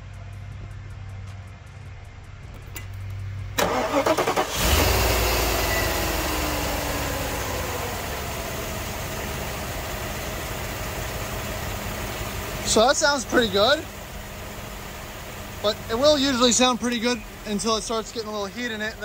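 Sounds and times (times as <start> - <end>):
car engine idling: 0.0 - 19.0
car starter cranking: 2.6 - 19.0.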